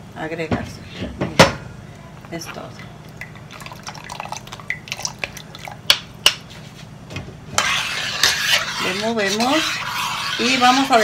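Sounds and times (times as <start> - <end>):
metal spoon scraping in strainer: 7.6 - 11.0.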